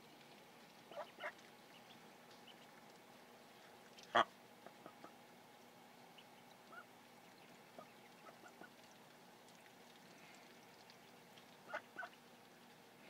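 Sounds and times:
ducklings peeping: 0.8s - 2.9s, 3.9s - 5.2s, 6.1s - 8.9s, 10.4s - 12.7s.

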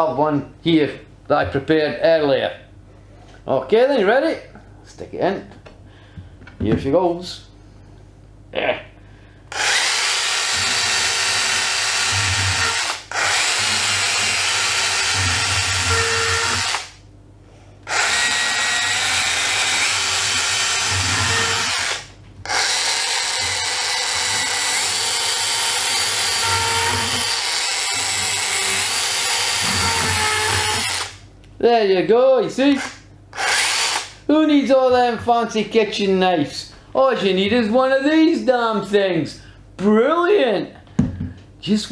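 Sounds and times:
cordless saw whining: 9.5s - 16.9s, 17.8s - 31.2s, 32.8s - 34.2s.

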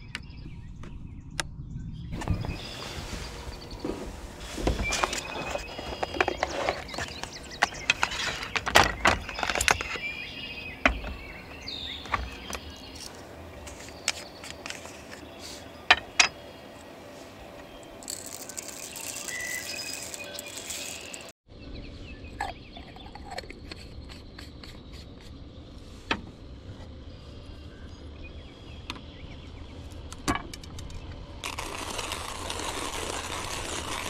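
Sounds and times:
bird chirps: 0.0s - 26.0s
clicks and knocks of handling: 4.6s - 10.1s.

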